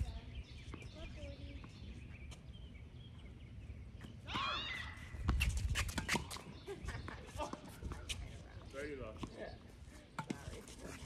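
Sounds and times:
tennis ball and racket strikes: 5.2 - 6.6.

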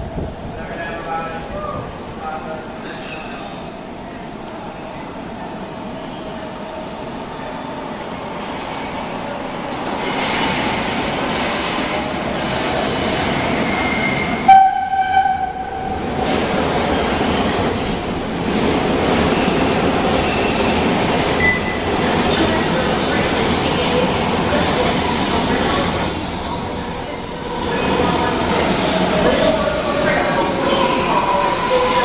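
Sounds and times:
train rumbling on rails: 0.0 - 32.0
train horn blasts: 14.4 - 15.9.

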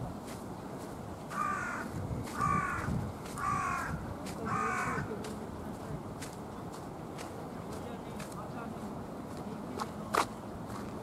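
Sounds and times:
crow cawing: 1.3 - 5.1.

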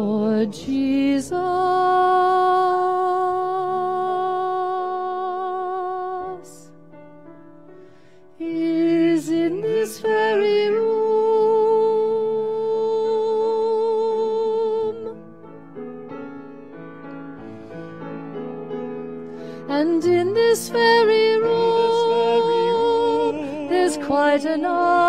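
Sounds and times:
woman singing gospel song: 0.0 - 6.7, 8.4 - 15.2, 19.7 - 25.0
piano accompaniment: 0.0 - 25.0.

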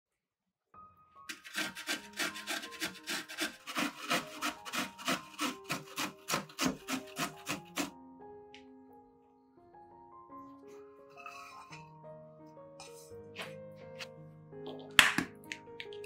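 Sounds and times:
vegetable grated on metal grater: 1.3 - 7.9.

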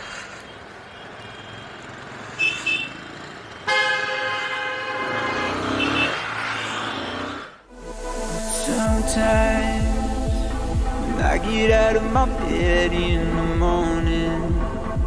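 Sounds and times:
motorcycle engine and road noise: 0.0 - 7.7.

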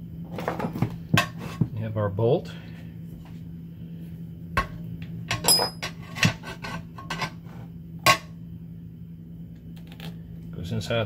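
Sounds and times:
steady low hum: 0.0 - 11.0
small metal parts clinking: 5.3 - 5.9.

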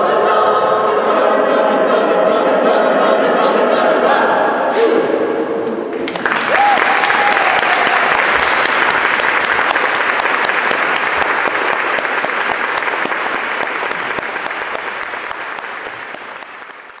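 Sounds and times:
audience applauding: 5.9 - 17.0.

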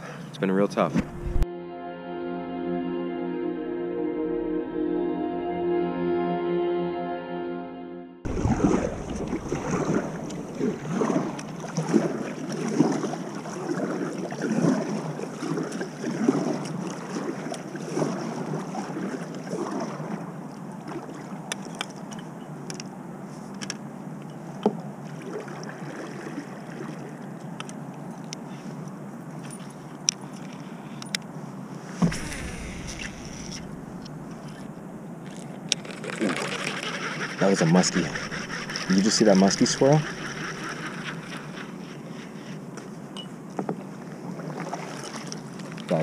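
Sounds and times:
water and hull sounds: 0.6 - 1.5, 8.2 - 46.0
paddle strokes splashing water: 8.3 - 22.1, 25.0 - 27.4, 31.9 - 34.7, 35.3 - 46.0.

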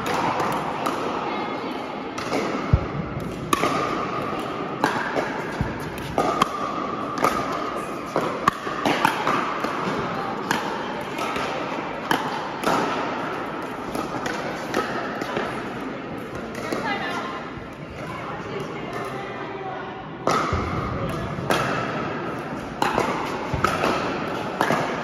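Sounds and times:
ball bouncing: 2.2 - 15.5, 20.2 - 21.8, 22.6 - 25.0.

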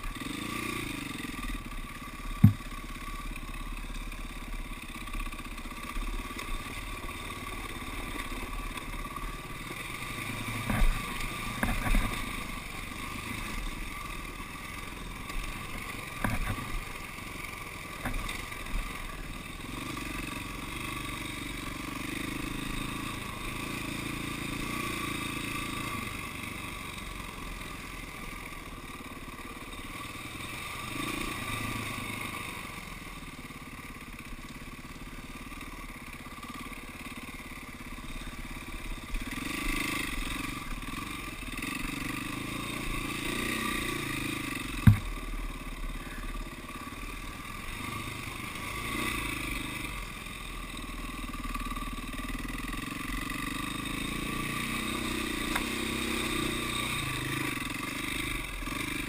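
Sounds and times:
dirt bike engine running: 0.0 - 59.0
knocks and clatter over bumps: 2.3 - 2.8, 10.5 - 12.4, 15.3 - 17.0, 18.0 - 18.8, 44.7 - 45.2.

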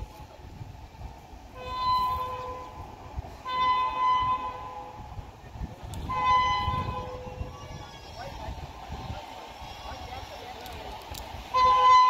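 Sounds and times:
train horn blasts: 1.5 - 5.2, 5.9 - 7.5, 11.5 - 12.0.

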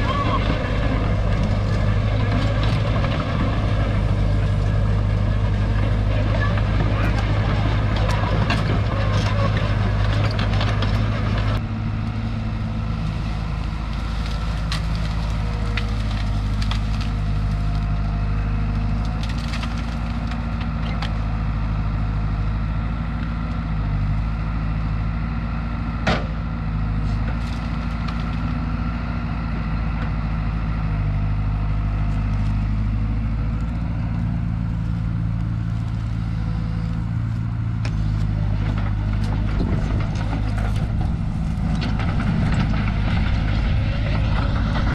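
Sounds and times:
excavator diesel engine running: 0.0 - 44.9
brush cracking: 12.9 - 21.4, 27.0 - 28.7, 32.0 - 44.8.

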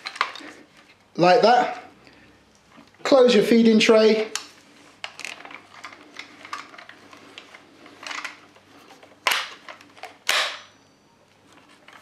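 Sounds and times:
small clicks and rattles: 4.4 - 10.3
gun cover clacking shut: 9.2 - 10.7.

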